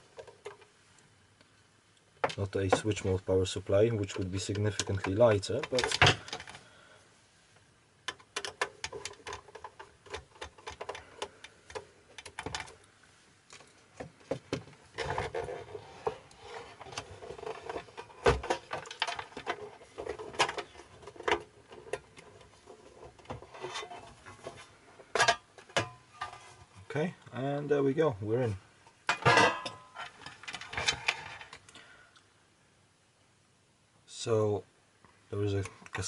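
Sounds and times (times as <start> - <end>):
hands and tool clicking and scraping: 3.9 - 6.6, 8.0 - 26.9.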